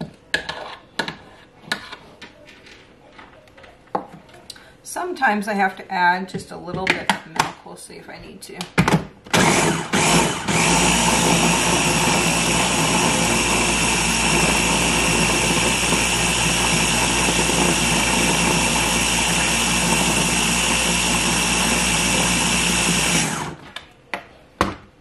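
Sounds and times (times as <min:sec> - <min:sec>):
electric blender running: 0:09.3 - 0:23.7.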